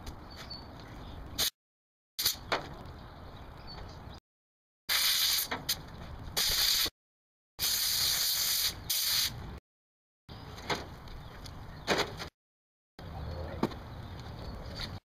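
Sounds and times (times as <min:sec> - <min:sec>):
compressed air hissing: 0:04.9 - 0:05.5, 0:07.6 - 0:09.4.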